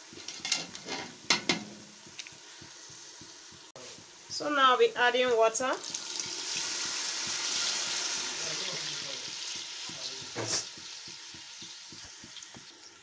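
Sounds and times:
water sizzling in hot oil: 0.0 - 13.0.

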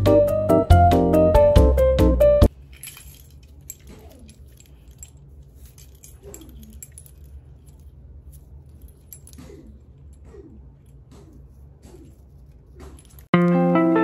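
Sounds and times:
key rings clinking: 2.5 - 10.2.

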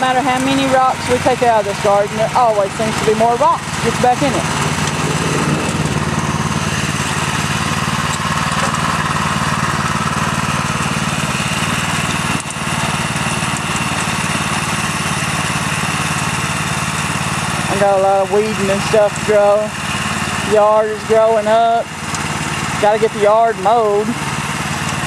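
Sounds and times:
tiller engine running: 0.0 - 25.0.

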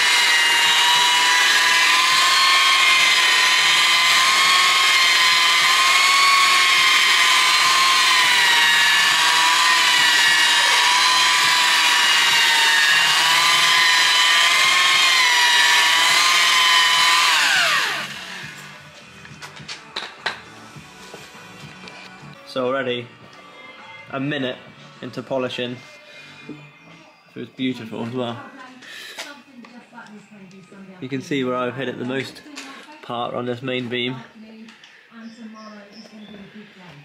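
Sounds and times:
machine polisher whining: 0.0 - 19.5.

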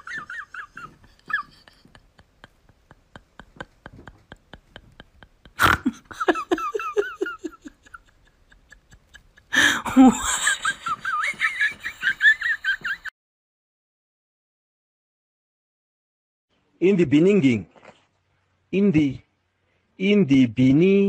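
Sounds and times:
high-pitched laugh: 0.0 - 13.1
person laughing: 0.0 - 13.1.

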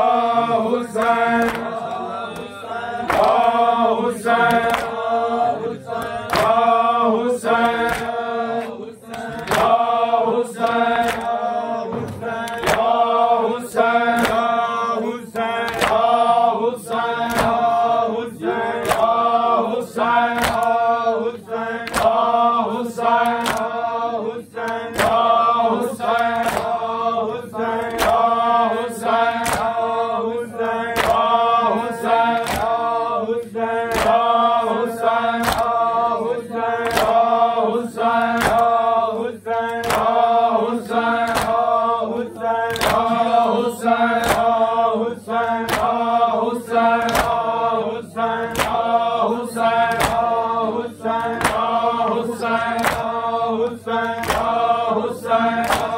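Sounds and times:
men chanting in unison: 0.0 - 55.9
rhythmic chest-beating slaps: 0.0 - 55.9.

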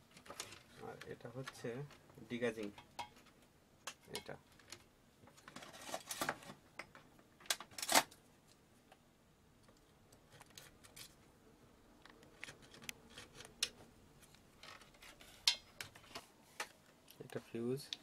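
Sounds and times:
plastic clicks and rustling: 0.1 - 2.0, 2.6 - 8.2, 12.0 - 18.0.

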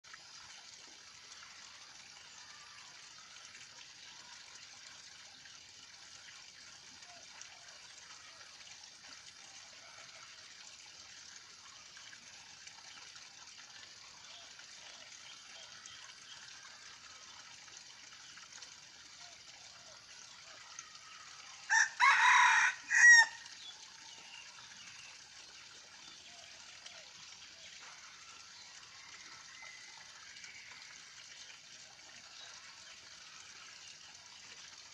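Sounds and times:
rooster crowing: 21.7 - 23.4.

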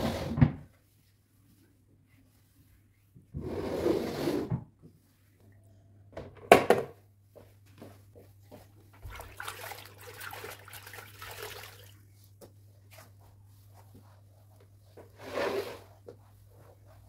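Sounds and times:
water sloshing in bucket: 8.9 - 12.1
cloth swishing over floor: 11.9 - 17.0.

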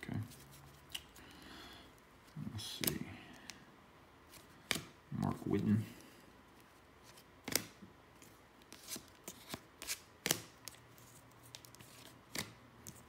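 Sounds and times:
cards flicked by hand: 4.6 - 5.0, 7.4 - 7.8, 11.5 - 13.0.

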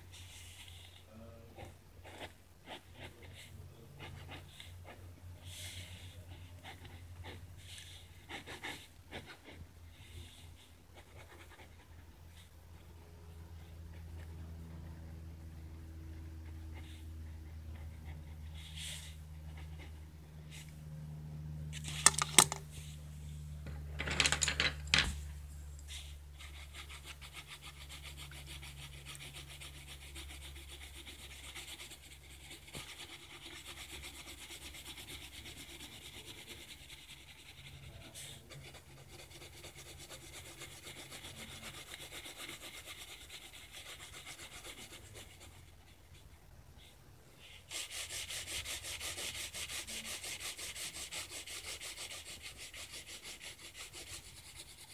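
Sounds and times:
pencil scratching on paper: 0.1 - 20.7, 21.8 - 22.6, 25.9 - 54.9
sharp clicks and knocks: 21.8 - 22.6.

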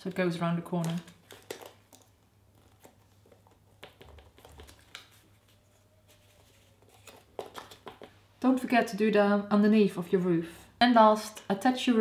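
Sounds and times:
paper rustling and tapping: 0.7 - 8.2.

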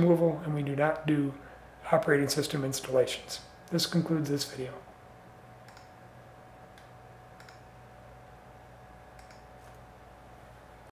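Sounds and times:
low steady hum: 0.0 - 10.9
computer mouse clicks: 5.6 - 6.0, 6.7 - 7.7, 9.2 - 9.8.

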